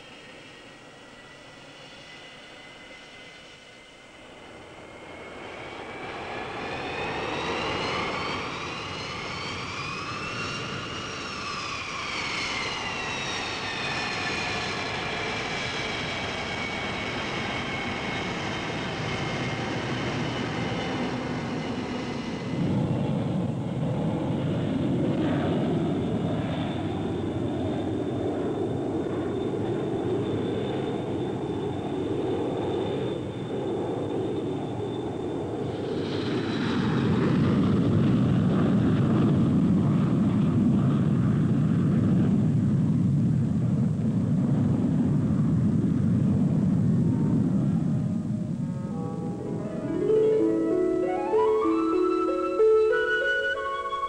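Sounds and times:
jet engines whining: 0.0 - 54.0
thin high tone: 48.8 - 54.0.

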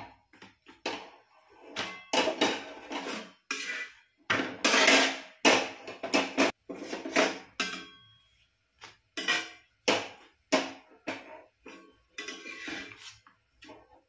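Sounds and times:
metal tongs and pan clanking: 1.7 - 8.2, 9.2 - 10.1, 11.1 - 13.0.

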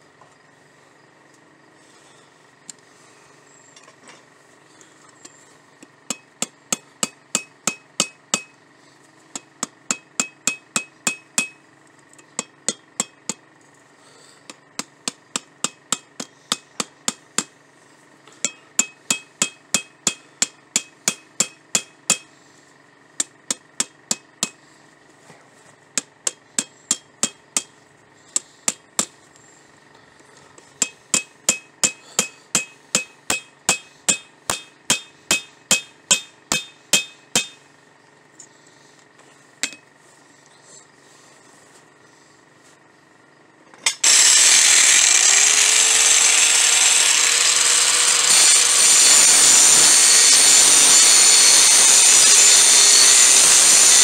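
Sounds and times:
hammer ringing on anvil: 6.1 - 8.5, 9.9 - 11.6, 18.4 - 22.3, 30.8 - 37.6.

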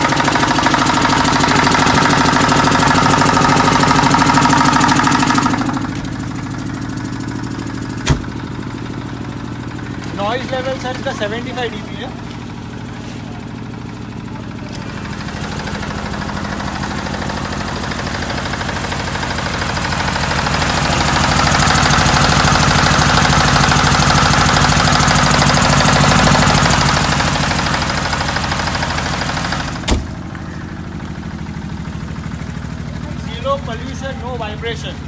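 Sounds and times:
diesel generator running: 0.0 - 35.0
sharp knock: 8.0 - 8.3, 29.9 - 30.1.

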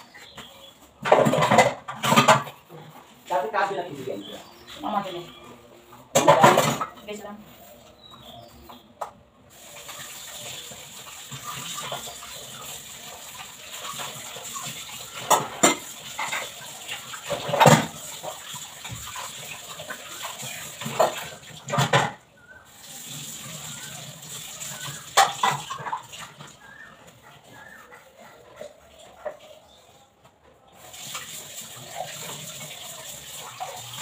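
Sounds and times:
tap water running into sink: 9.0 - 26.9, 30.8 - 34.0.

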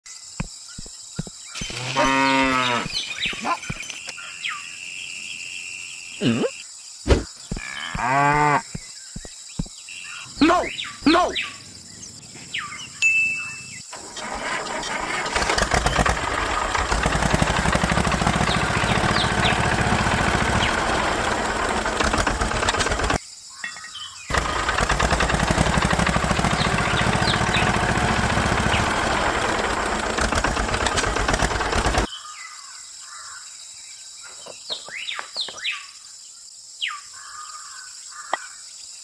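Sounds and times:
cows mooing: 1.8 - 2.9, 7.6 - 8.6
tractor engine running: 13.9 - 23.2, 24.3 - 32.1.

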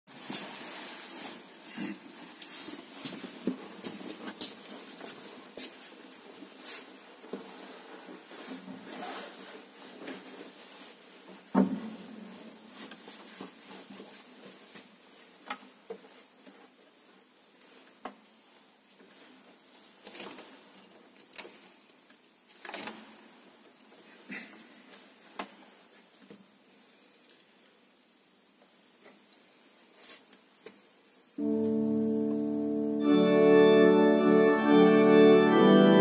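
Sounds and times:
footsteps: 0.1 - 17.2
clothing rustle: 0.1 - 26.7.

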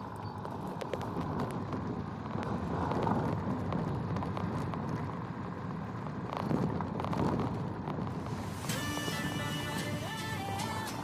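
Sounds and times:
vehicle engine and road rumble: 0.0 - 11.0.

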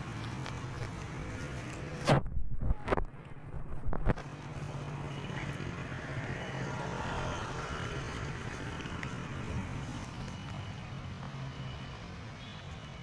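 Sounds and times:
vehicle engine passing: 4.2 - 11.9.

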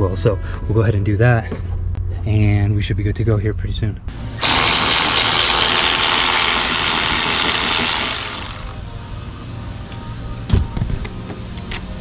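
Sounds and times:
power tool running: 4.3 - 8.8.

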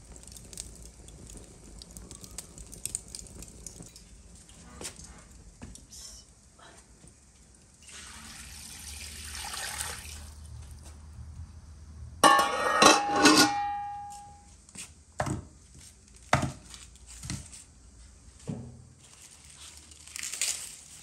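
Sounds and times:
water pouring into metal pot: 7.7 - 10.5
lid clattering on metal pot: 12.2 - 14.3.

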